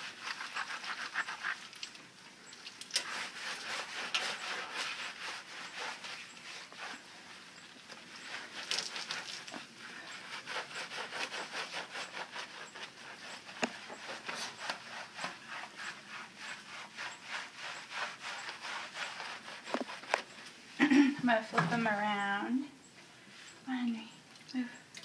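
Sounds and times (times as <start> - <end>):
hands rubbing wet fur: 2.6 - 21.0.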